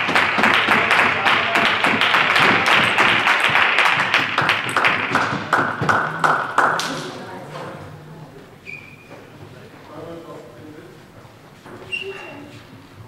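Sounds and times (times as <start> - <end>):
crowd applauding: 0.0 - 7.3.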